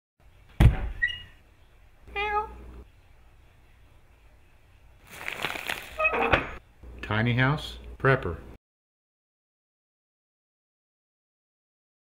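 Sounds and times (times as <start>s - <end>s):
cat meowing: 2.1s - 2.6s.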